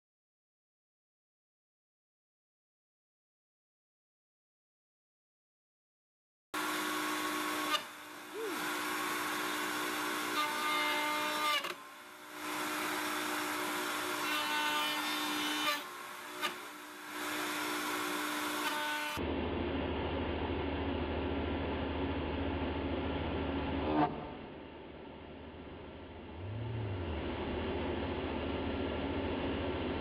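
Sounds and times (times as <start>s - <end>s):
router cutting wood: 6.6s - 19.2s.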